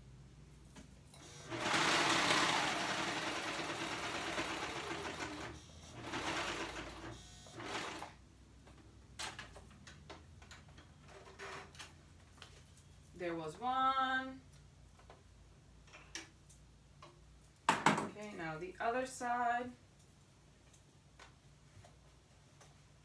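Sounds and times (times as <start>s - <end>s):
sewing machine stitching: 1.2s - 8.2s.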